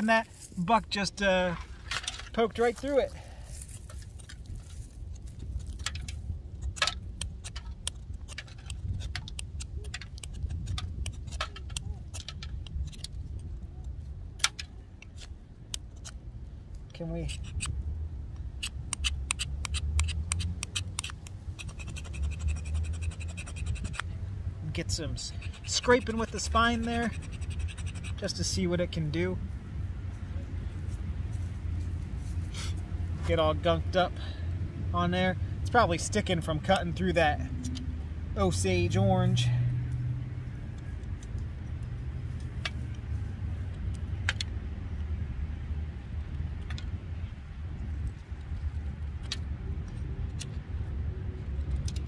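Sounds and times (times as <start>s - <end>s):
wind rumble on microphone: 3.5s - 14.4s, 39.8s - 52.0s
knife scraping wood: 6.6s - 13.1s, 18.6s - 24.1s, 25.1s - 28.4s.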